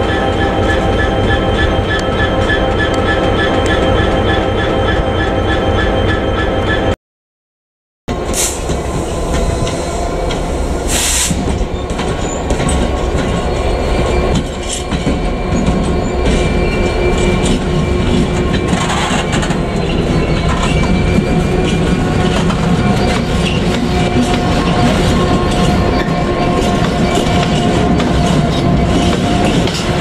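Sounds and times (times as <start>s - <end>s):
diesel locomotive engine running: 8.1s - 30.0s.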